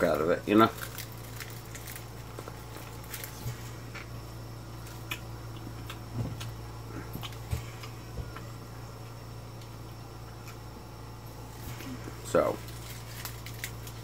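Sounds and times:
steady low hum: 0.0 - 14.0
chewing with wet clicks: 4.9 - 6.6.

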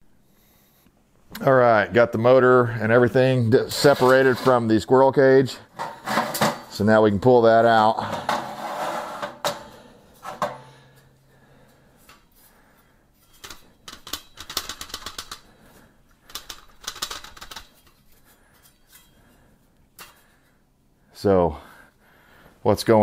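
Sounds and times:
sheet metal clatter: 5.8 - 6.8, 8.0 - 11.0, 13.2 - 15.4.

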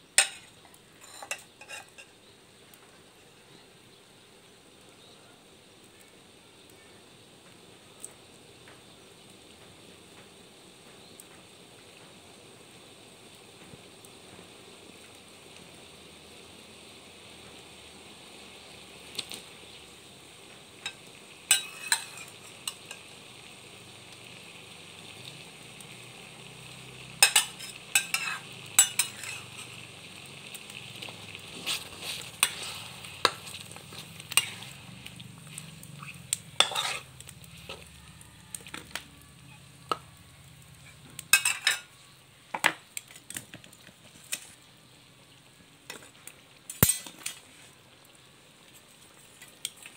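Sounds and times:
curry sizzling in a wok: 0.0 - 49.9
metal utensil scraping pan: 0.2 - 2.1, 20.8 - 23.1, 27.2 - 29.8, 31.5 - 34.8, 35.5 - 37.9, 40.8 - 41.9, 46.7 - 47.4.

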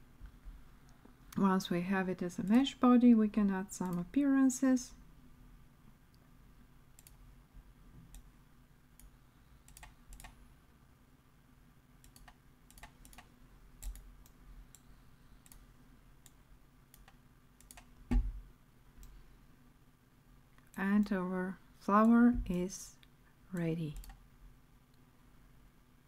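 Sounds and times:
computer mouse and keyboard clicking: 9.0 - 10.4, 12.0 - 18.3
low thump: 18.1 - 18.4.

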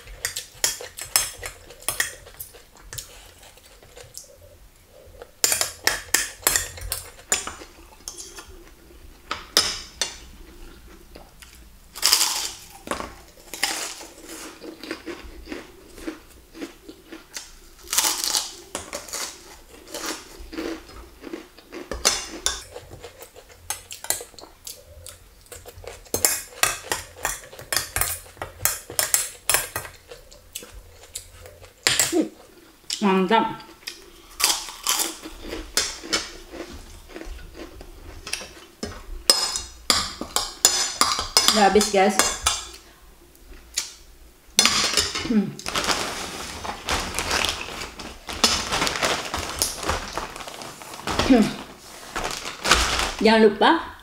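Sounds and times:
cutlery scraping on a plate: 5.4 - 8.5.

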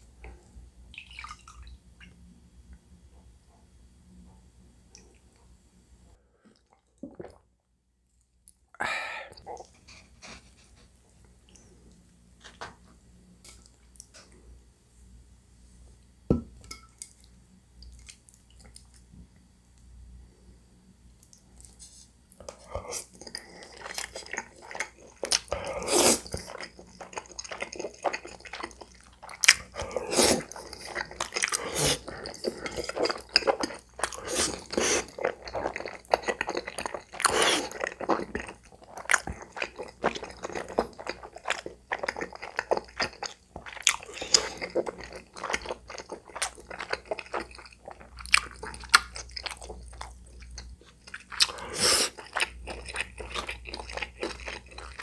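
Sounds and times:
close mouth chewing sounds: 22.5 - 55.0.

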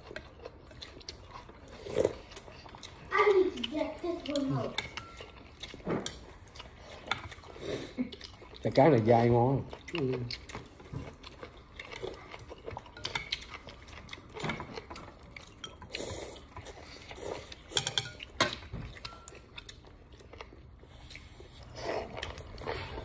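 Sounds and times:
chewing: 0.0 - 23.0
spoon and chopsticks clinking bowl: 4.7 - 5.4, 17.7 - 19.4.

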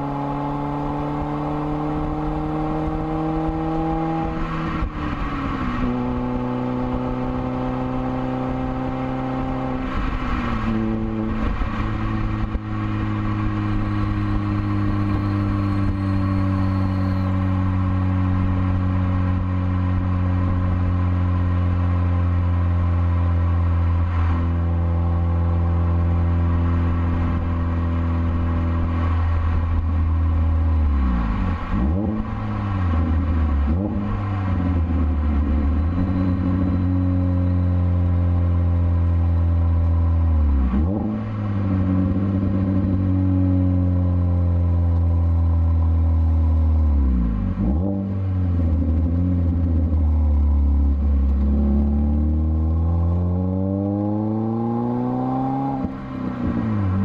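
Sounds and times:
car exhaust drone: 0.0 - 57.0.

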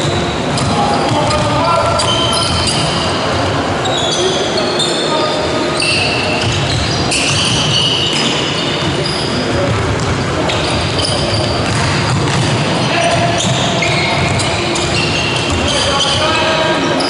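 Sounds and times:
shoes squeaking on wooden court: 0.0 - 17.0
basketball dribbling thuds: 9.5 - 15.7.

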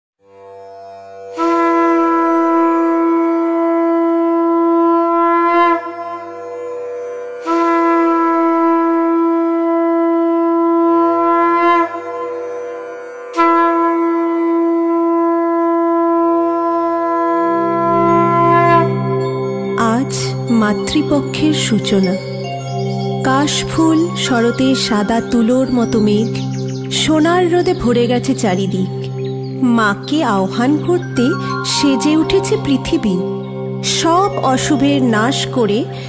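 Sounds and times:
conch shell blown: 1.3 - 19.8.

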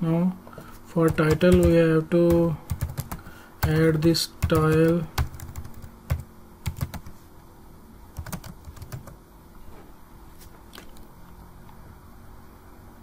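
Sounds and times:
keyboard typing clicks: 1.0 - 7.1, 8.2 - 9.2.

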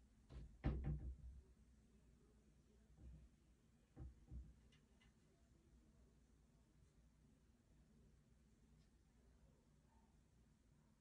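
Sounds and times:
cabinet door knocking on frame: 0.3 - 1.3.

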